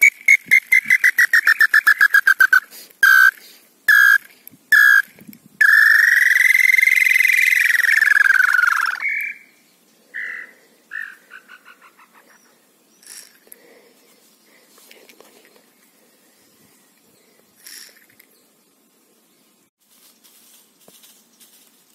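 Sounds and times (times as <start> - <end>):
whistled bird song: 0.0 - 3.3, 5.6 - 9.7.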